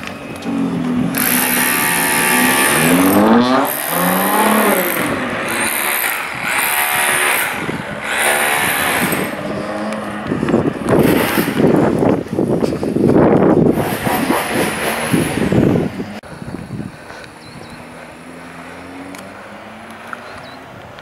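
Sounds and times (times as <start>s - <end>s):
car engine revving: 0.0s - 12.0s, 17.7s - 20.5s
rough rush of noise: 0.0s - 20.4s.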